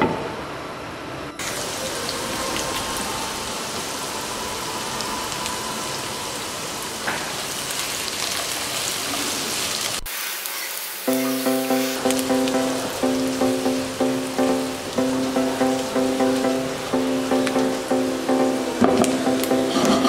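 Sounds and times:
potatoes sizzling in oil: 6.4 - 13.9.

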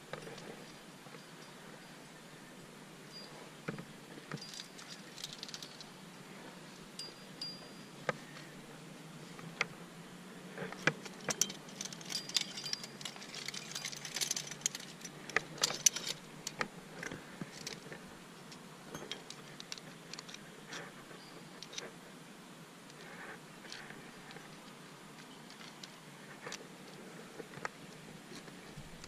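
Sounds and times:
metal climbing gear clinking: 0.1 - 2.0, 3.1 - 6.1, 6.8 - 8.7, 10.6 - 21.9, 23.7 - 27.0.

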